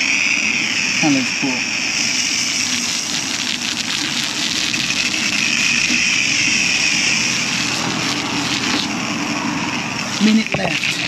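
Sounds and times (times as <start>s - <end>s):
steady low hum: 0.0s - 11.0s
spray wand hissing on bodywork: 2.0s - 9.1s.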